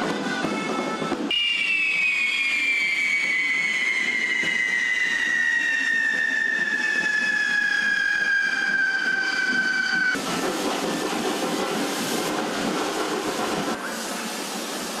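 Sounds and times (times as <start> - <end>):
descending firework whistle: 1.3 - 10.2
fireworks hissing: 1.4 - 7.5, 10.1 - 15.0.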